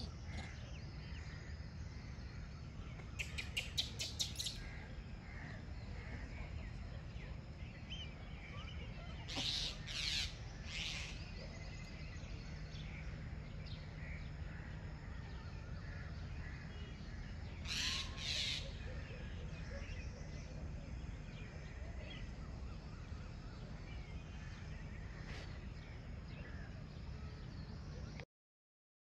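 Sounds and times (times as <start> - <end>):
faint bird chirps: 0.0 - 28.2
low outdoor rumble: 0.0 - 28.2.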